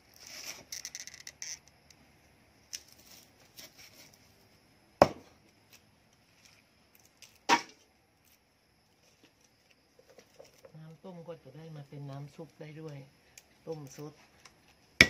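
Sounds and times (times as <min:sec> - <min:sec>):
rustling: 0:02.7 - 0:04.6, 0:05.6 - 0:10.9.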